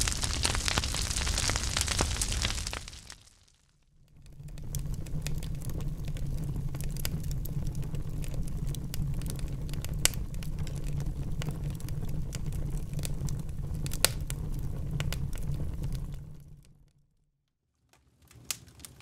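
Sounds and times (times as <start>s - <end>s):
sharp pops of fire: 0.0s - 3.7s, 9.2s - 11.5s, 13.8s - 14.4s
firewood crackling: 0.0s - 16.8s, 17.9s - 19.0s.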